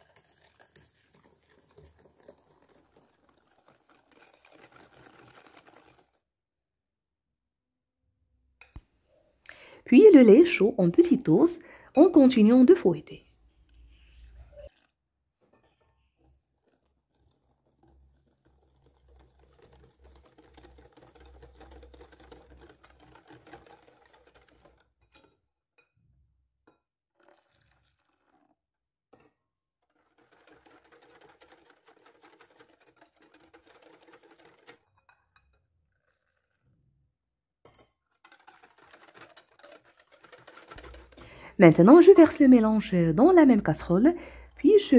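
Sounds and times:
whisk scraping glass bowl: 0.0s - 6.2s, 13.8s - 25.4s, 27.2s - 28.5s, 29.2s - 36.8s, 37.7s - 44.9s.

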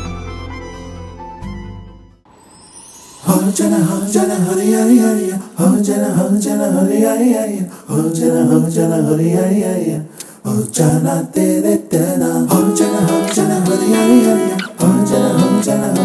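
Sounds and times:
person singing: 3.2s - 16.0s.

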